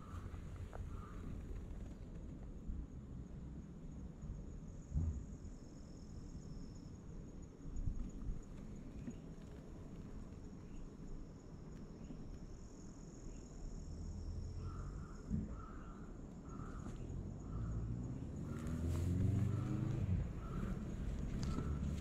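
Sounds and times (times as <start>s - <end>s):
vehicle engine rising in pitch: 17.1s - 22.0s.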